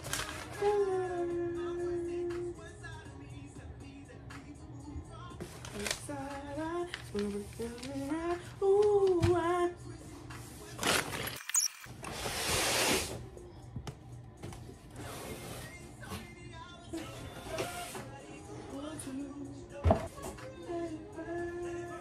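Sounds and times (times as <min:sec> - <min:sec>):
cardboard packaging rustling: 0:00.0 - 0:00.8
music with singing: 0:00.0 - 0:11.4, 0:12.1 - 0:22.0.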